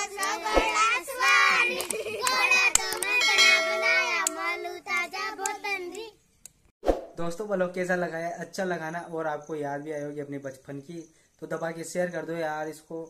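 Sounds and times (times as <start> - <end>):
children singing folk song: 0.0 - 6.2
children laughing: 0.7 - 4.1
bell-like chime: 3.2 - 4.2.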